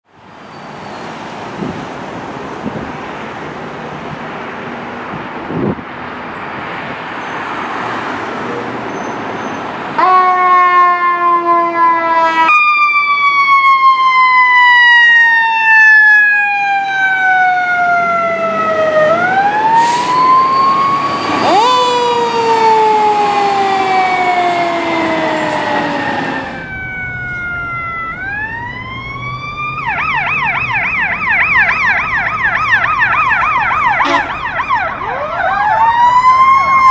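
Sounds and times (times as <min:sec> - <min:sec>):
vehicle and road noise: 0:00.0 - 0:36.9
emergency sirens wailing: 0:09.6 - 0:36.9
siren fast yelp: 0:10.0 - 0:36.9.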